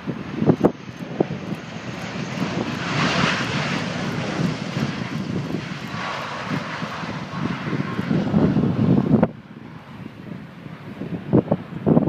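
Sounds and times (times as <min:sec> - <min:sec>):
jet engines landing: 0:00.0 - 0:12.0.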